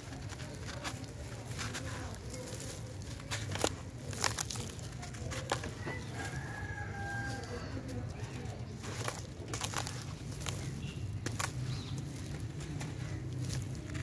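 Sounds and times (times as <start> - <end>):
rooster crowing: 5.8 - 7.9.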